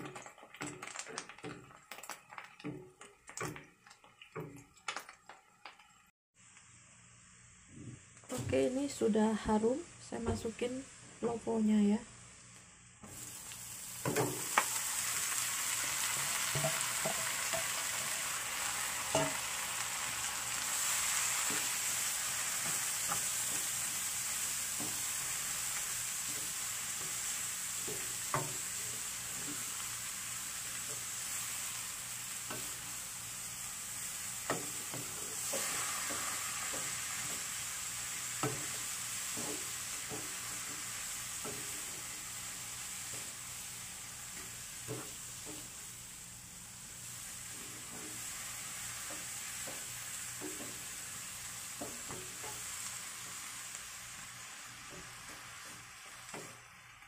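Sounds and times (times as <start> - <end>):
radish sizzling in hot oil: 0.0 - 57.0
spatula knocking and scraping pan: 14.0 - 14.7, 15.9 - 29.9, 32.4 - 32.9, 34.4 - 42.4, 44.3 - 45.8, 47.5 - 48.3, 49.0 - 51.1, 51.7 - 52.8, 54.8 - 56.6.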